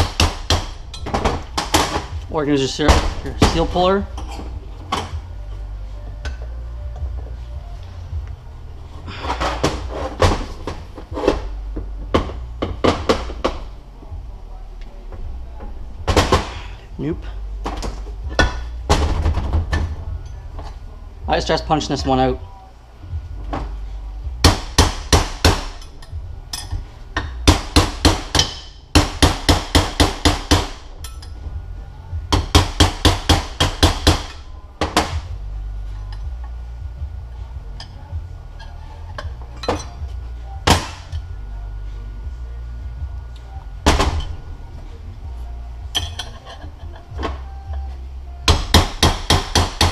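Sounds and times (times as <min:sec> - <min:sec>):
hammer striking metal punch: 0:00.0 - 0:02.2, 0:24.4 - 0:31.4, 0:32.3 - 0:35.3, 0:40.6 - 0:41.3, 0:48.5 - 0:49.9
metal tools knocking: 0:45.8 - 0:47.8.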